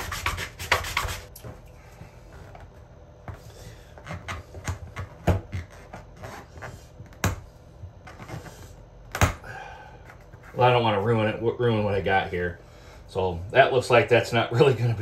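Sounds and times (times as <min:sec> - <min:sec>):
hand sanding resin: 0:00.0 - 0:01.3.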